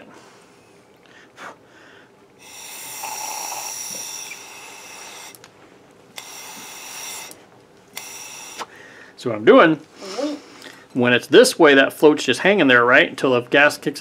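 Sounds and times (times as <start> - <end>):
air hissing through a hose: 2.4 - 5.4, 6.1 - 8.8.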